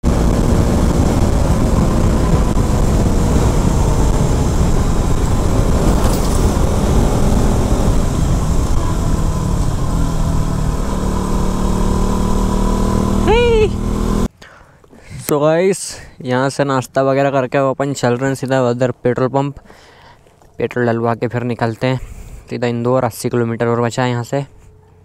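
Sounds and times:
motorcycle engine running: 0:00.0 - 0:14.3
wind and road noise: 0:00.0 - 0:14.3.

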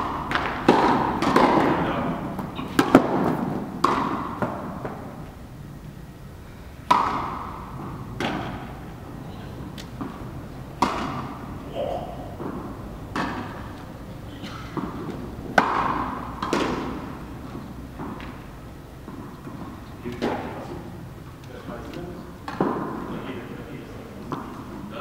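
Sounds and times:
tennis ball struck by rackets: 0:00.0 - 0:05.1, 0:06.8 - 0:09.0, 0:09.7 - 0:13.9, 0:14.7 - 0:18.4, 0:22.4 - 0:23.0
tennis ball bouncing on court: 0:00.0 - 0:05.4, 0:06.8 - 0:09.0, 0:09.6 - 0:14.0, 0:14.7 - 0:20.5, 0:22.4 - 0:23.1, 0:24.3 - 0:24.8.

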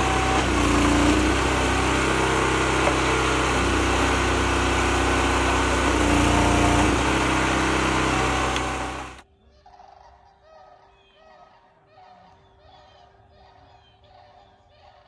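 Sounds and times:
small gasoline engine running: 0:00.0 - 0:09.2.

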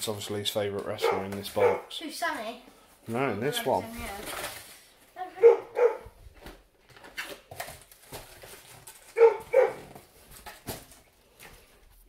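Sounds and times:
dog barking excitedly: 0:01.0 - 0:02.0, 0:05.3 - 0:06.2, 0:09.1 - 0:10.0
cardboard box rustling: 0:06.9 - 0:11.1.

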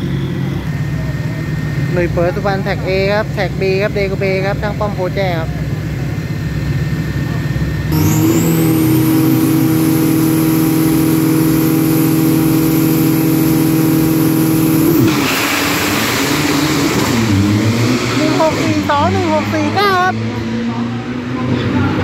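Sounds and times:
truck engines revving high: 0:00.0 - 0:22.0
thin high whine: 0:07.8 - 0:15.8
trucks launching with loud rush: 0:07.9 - 0:19.9.

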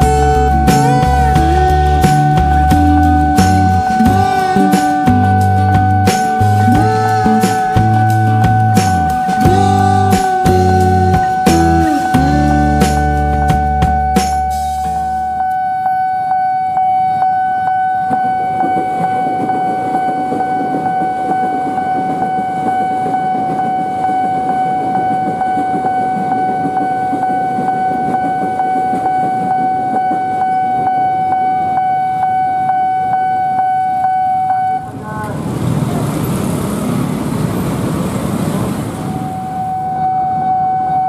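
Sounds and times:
low rumble: 0:00.0 - 0:15.4
level crossing alarm tone: 0:00.0 - 0:35.3, 0:39.0 - 0:41.0.

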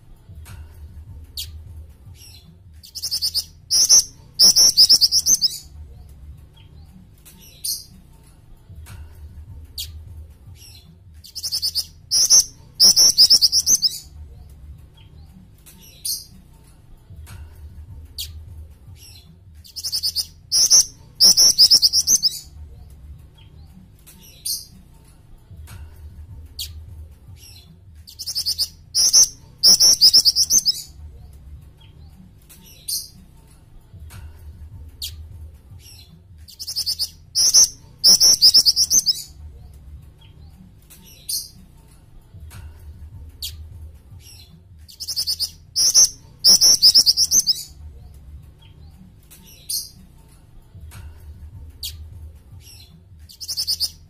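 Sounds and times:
bird trilled chirps: 0:02.2 - 0:05.7, 0:10.6 - 0:14.1, 0:19.0 - 0:22.6, 0:27.4 - 0:31.0, 0:35.8 - 0:39.3, 0:44.3 - 0:47.8, 0:52.6 - 0:54.0.

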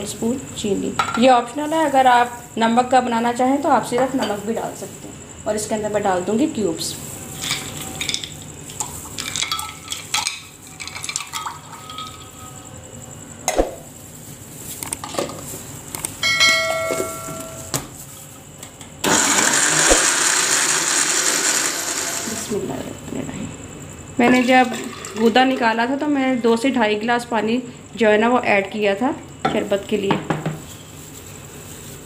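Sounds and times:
ice cubes clinking into glass jar: 0:09.2 - 0:12.4
blender motor crushing ice: 0:19.0 - 0:22.5.

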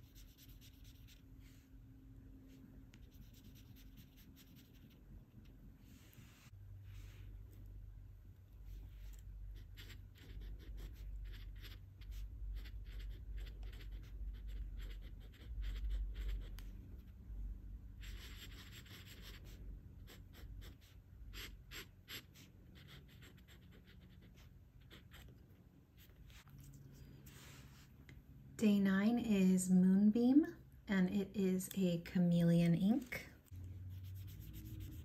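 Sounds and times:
pen nib scratching on paper: 0:00.0 - 0:01.2, 0:03.0 - 0:05.0, 0:09.1 - 0:16.7, 0:18.0 - 0:25.4, 0:34.0 - 0:35.0
low hum: 0:26.1 - 0:35.0.

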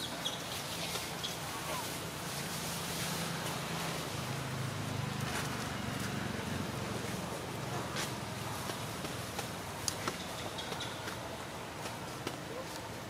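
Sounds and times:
constant hiss: 0:00.0 - 0:13.0.

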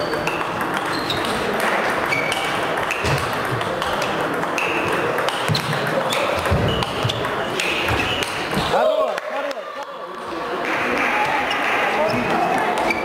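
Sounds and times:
table tennis ball clicking: 0:00.0 - 0:08.4
background noise in large hall: 0:00.0 - 0:13.0.

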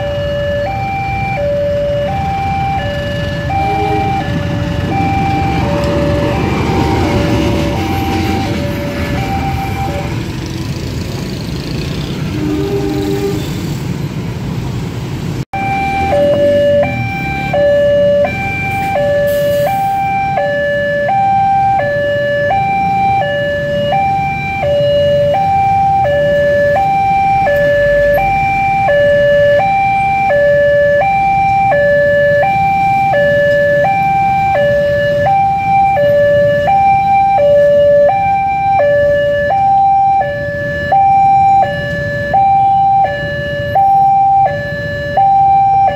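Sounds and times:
level crossing two-tone alarm: 0:00.0 - 0:10.2, 0:15.6 - 0:45.9
motorbike engines: 0:00.0 - 0:45.9.

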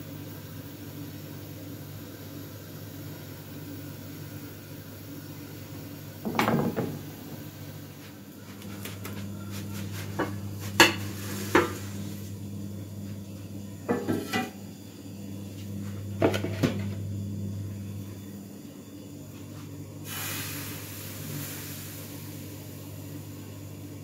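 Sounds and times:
steady low hum: 0:00.0 - 0:24.0
kitchenware knocking and clinking: 0:06.3 - 0:07.0, 0:13.9 - 0:14.5.

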